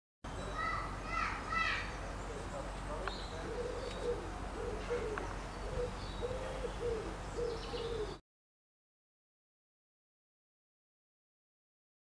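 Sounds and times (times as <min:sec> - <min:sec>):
faint high bird chirps: 0:00.3 - 0:08.2
low hooting calls: 0:00.6 - 0:08.2.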